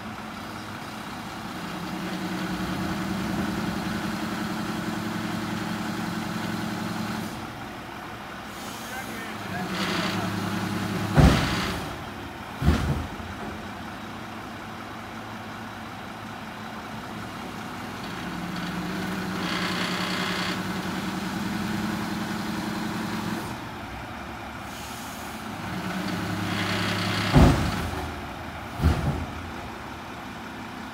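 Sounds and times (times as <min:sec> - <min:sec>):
garbage truck engine running: 0:00.0 - 0:30.9
hiss: 0:08.5 - 0:09.1, 0:24.6 - 0:25.5.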